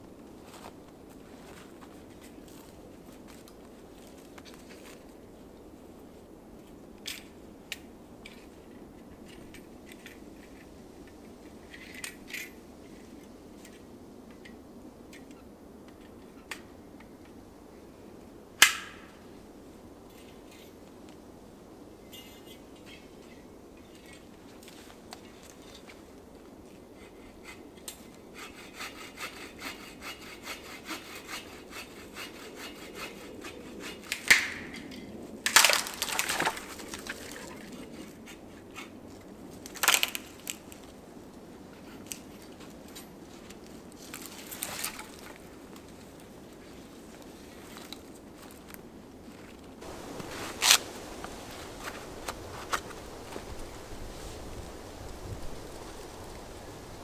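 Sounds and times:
hand saw cutting wood: 27.0 - 34.5
wood cracking and snapping: 35.4 - 37.7, 39.6 - 40.8, 44.1 - 45.4.

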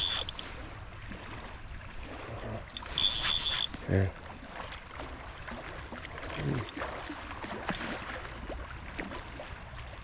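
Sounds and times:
small clicks: 0.0 - 0.5, 2.8 - 3.8.

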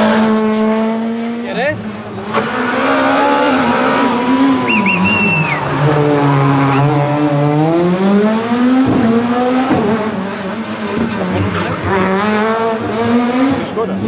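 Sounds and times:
rally car engine revving: 0.0 - 14.0
high whistle: 4.4 - 5.7.

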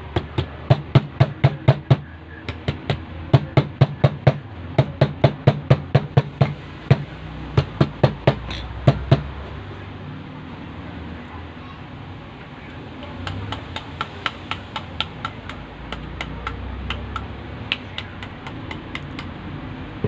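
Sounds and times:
rapid hammer taps on motor coils: 13.2 - 19.3.

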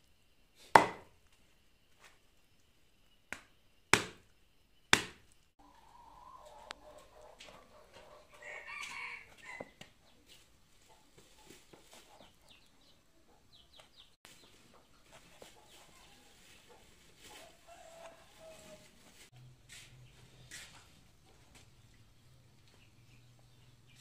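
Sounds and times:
rooster crowing: 5.6 - 9.7.

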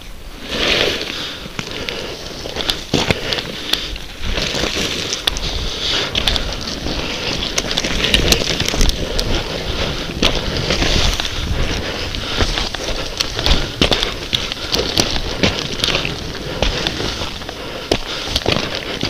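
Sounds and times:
wind rumbling on microphone: 0.0 - 19.0
sharp clicks and scrapes: 0.5 - 9.4.

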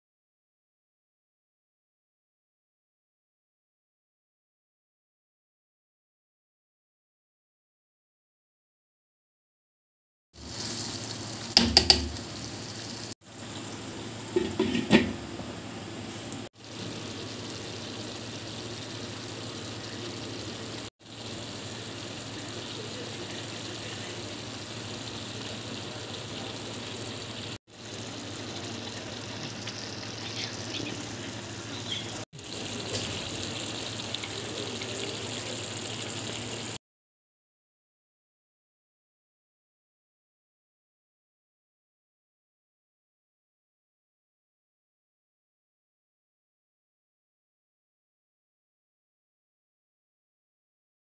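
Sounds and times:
curry bubbling and sizzling in pot: 10.4 - 36.8
spatula scraping pot: 14.3 - 15.2.

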